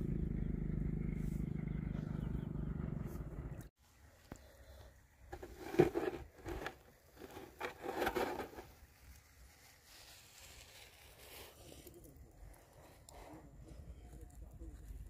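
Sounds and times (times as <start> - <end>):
faint rustle: 4.1 - 15.0
hands scraping in coarse sand: 5.3 - 13.5.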